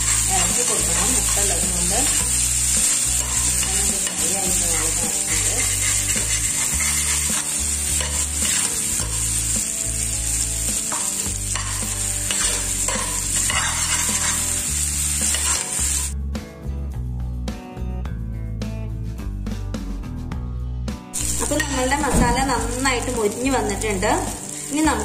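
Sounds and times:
metal spatula scraping a pan: 0:00.0 - 0:09.5, 0:10.9 - 0:14.6, 0:15.2 - 0:15.8, 0:21.2 - 0:22.5
food sizzling in a frying pan: 0:00.0 - 0:16.2, 0:21.2 - 0:25.0.

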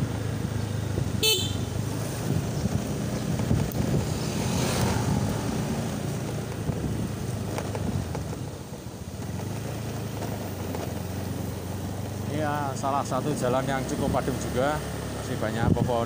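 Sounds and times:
motor scooter engine: 0:00.0 - 0:15.8
wind noise on microphone: 0:00.4 - 0:08.6, 0:15.6 - 0:16.0.

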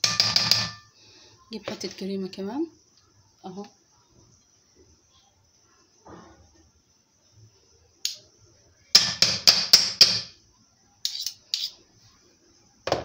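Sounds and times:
metal spoons clinking on pan: 0:00.0 - 0:00.9, 0:11.0 - 0:11.8.

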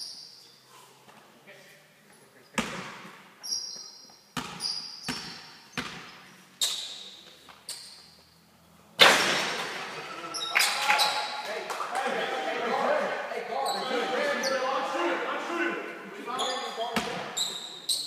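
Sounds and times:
shoe squeaks: 0:00.0 - 0:00.7, 0:03.4 - 0:08.4, 0:10.2 - 0:11.4, 0:13.6 - 0:14.8, 0:16.3 - 0:18.0
basketball bouncing: 0:04.4 - 0:06.2
loud bang: 0:09.0 - 0:10.1.

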